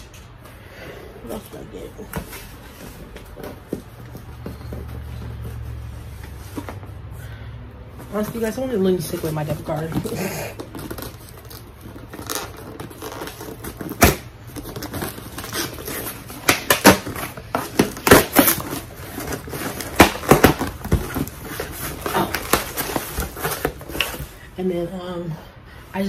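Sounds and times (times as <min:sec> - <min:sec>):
packaging crinkling and rustling: 0:09.2 - 0:24.4.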